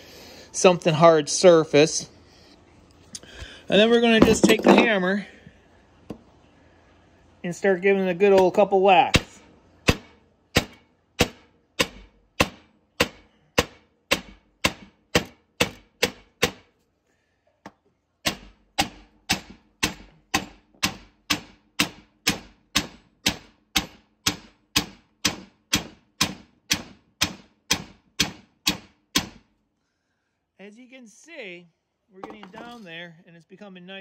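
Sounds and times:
hammer striking metal: 9.9 - 16.6.

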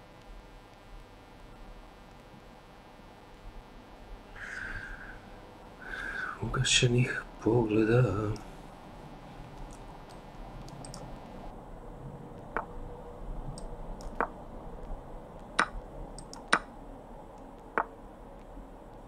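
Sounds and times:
sharp computer clicks: 9.6 - 11.3, 13.6 - 14.3, 15.4 - 16.7.

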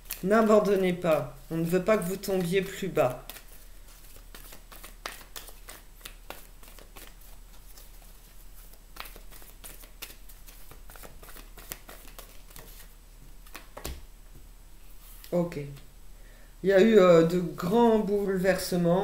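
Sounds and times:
cards being shuffled: 0.0 - 14.0, 15.0 - 15.8.

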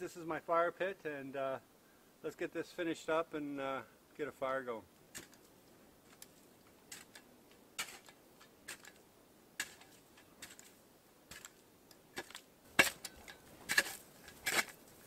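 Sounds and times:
shovel crunching into packed snow: 9.6 - 11.6, 12.2 - 15.0.

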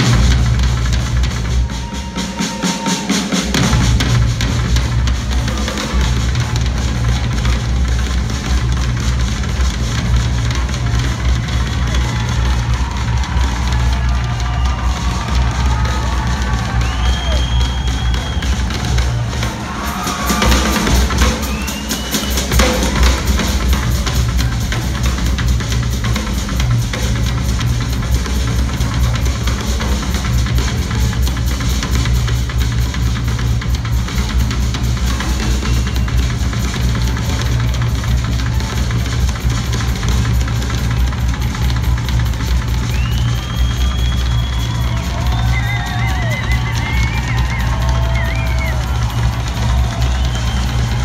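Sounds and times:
drum kit solo: 0.0 - 51.0
bass drum rumble: 3.6 - 19.8, 22.6 - 51.0.

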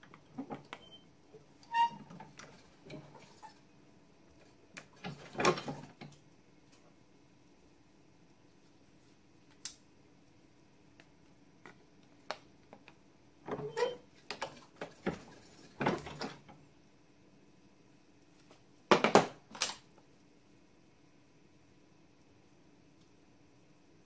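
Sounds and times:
bench vise clunks and rattles: 5.0 - 6.1.

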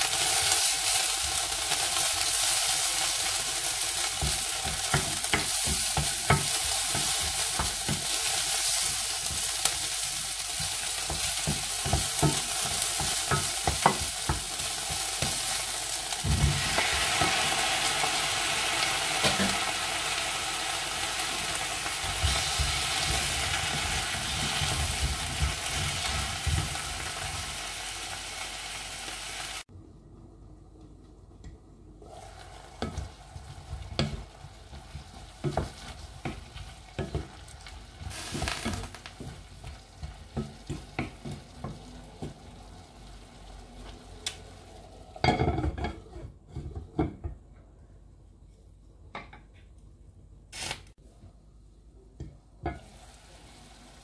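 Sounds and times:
onion and shrimp sizzling in pan: 0.0 - 29.7, 32.0 - 46.6, 52.6 - 54.0
wooden spatula scraping pan: 45.6 - 46.9.

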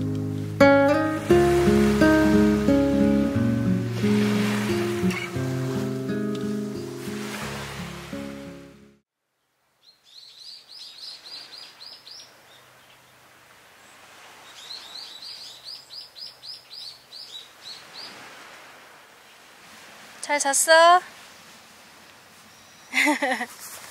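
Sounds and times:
songbird chirping: 0.0 - 7.0, 9.3 - 18.2, 21.2 - 23.0
faint outdoor ambience: 0.0 - 23.9.

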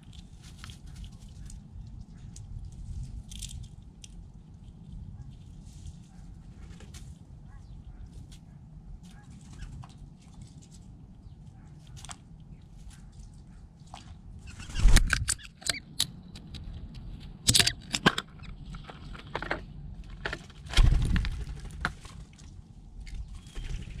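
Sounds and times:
low wind rumble: 0.0 - 24.0
peanut shells clicking and knocking: 2.2 - 5.1
bird wings flapping: 14.5 - 15.3, 20.6 - 22.3, 23.4 - 24.0.

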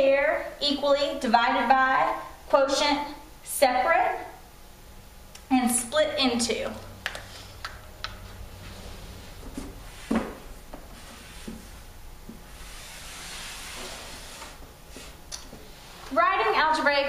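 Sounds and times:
paper sliding rustle: 12.6 - 15.2.

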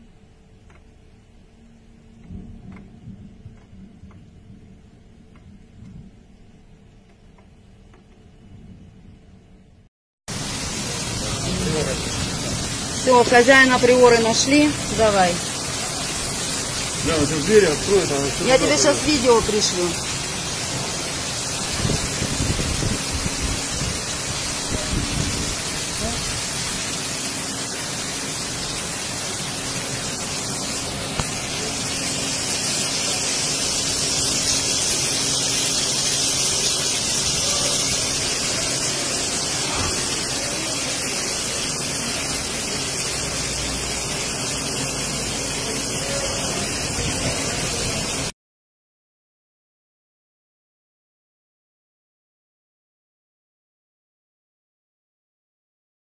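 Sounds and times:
heavy rain hissing: 10.3 - 48.3.

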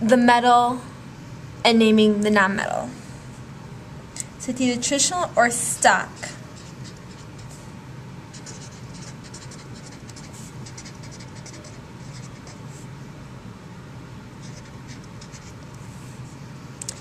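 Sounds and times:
low steady hum: 0.0 - 17.0
marker scratching on paper: 6.2 - 7.6, 8.3 - 12.9, 14.4 - 15.7.

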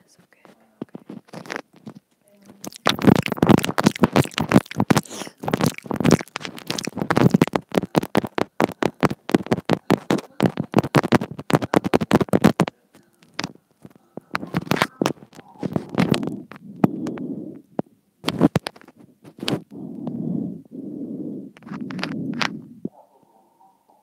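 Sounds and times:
close crackling and clicking on mic: 0.0 - 23.0.

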